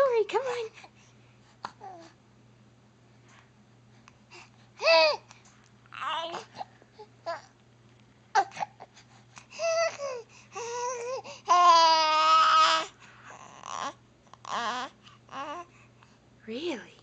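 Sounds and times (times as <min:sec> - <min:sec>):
baby babbling and cooing: 0:01.6 - 0:02.2, 0:04.8 - 0:05.3, 0:05.9 - 0:07.5, 0:08.3 - 0:08.9, 0:09.6 - 0:15.7.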